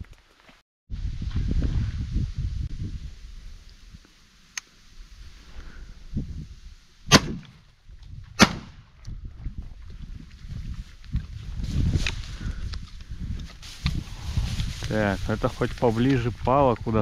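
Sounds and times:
loud shotgun shots: 0:07.1 - 0:07.6, 0:08.4 - 0:08.8.

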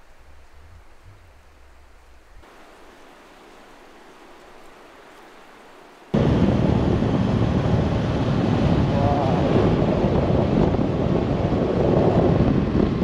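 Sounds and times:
faint outdoor hiss: 0:00.0 - 0:06.2
wind rushing over microphone: 0:06.1 - 0:13.0.

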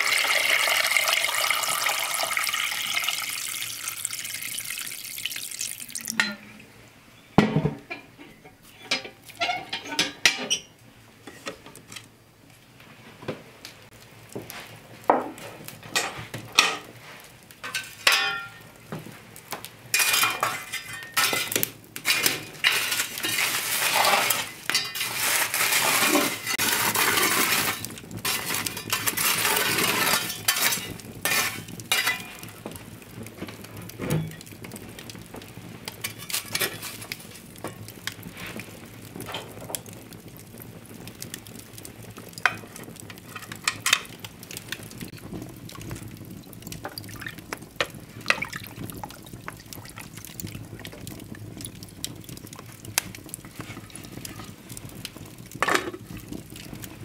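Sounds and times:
metal hearth tools clinking: 0:17.7 - 0:18.6, 0:30.2 - 0:32.4
embers and logs scraping: 0:19.9 - 0:35.0, 0:35.8 - 0:40.0, 0:52.6 - 0:55.0.

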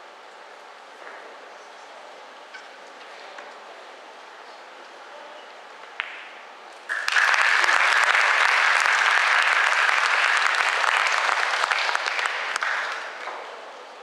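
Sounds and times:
audience applauding: 0:06.9 - 0:13.4.

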